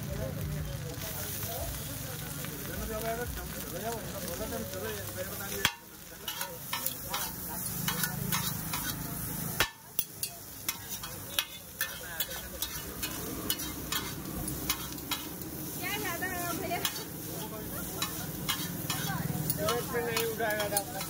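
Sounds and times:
noodles sizzling on griddle: 0.0 - 21.0
metal spatula scraping and clacking: 4.9 - 15.5, 16.5 - 21.0.

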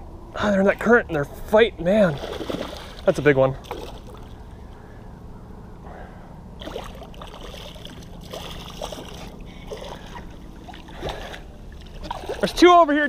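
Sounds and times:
water splashing and trickling: 1.9 - 4.5, 6.6 - 13.0.

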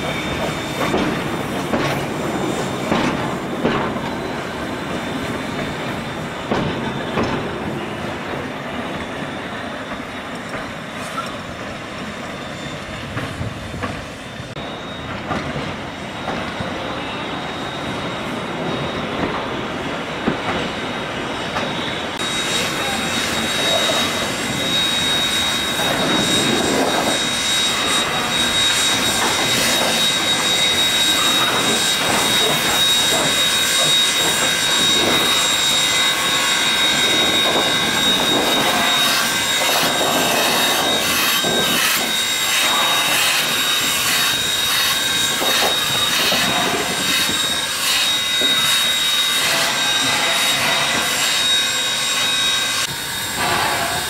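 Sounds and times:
steady high whine: 0.0 - 54.0
steam locomotive rolling past: 0.0 - 54.0
steam hissing: 15.9 - 54.0.

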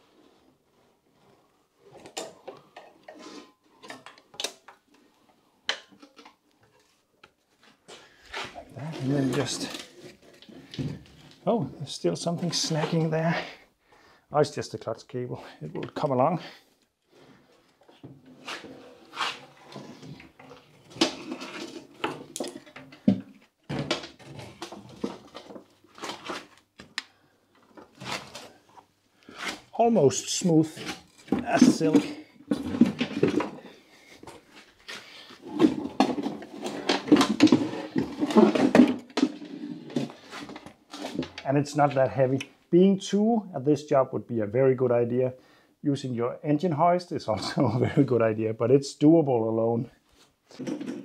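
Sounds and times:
metal clanks and scraping: 8.3 - 11.4.

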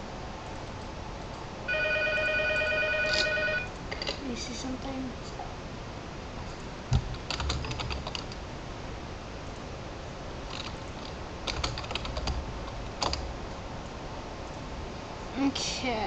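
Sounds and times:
keyboard typing clicks: 7.3 - 8.4.

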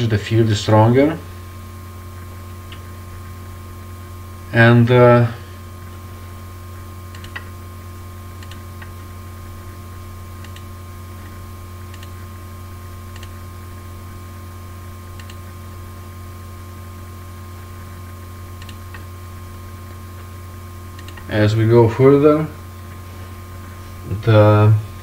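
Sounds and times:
faint whine: 0.0 - 25.0
low hum: 0.0 - 25.0
faint clicks: 10.4 - 12.2, 15.2 - 15.4, 18.6 - 19.1, 21.0 - 21.3.

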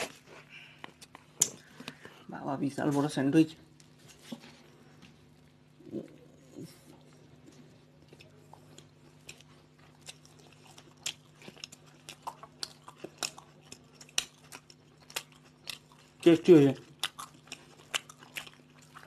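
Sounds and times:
faint steady hum: 0.0 - 19.0
people chewing toasted sandwiches: 0.0 - 19.0
toasted bread crunching: 7.0 - 19.0.

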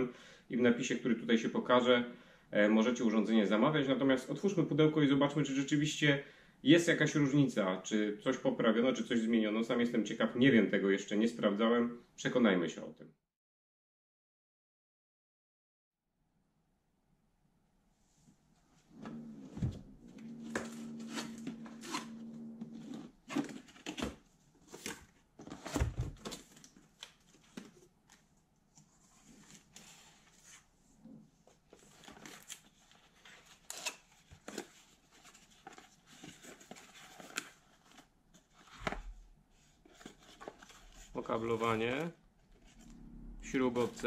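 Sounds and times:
cardboard and plastic bags rustling: 19.5 - 28.0.

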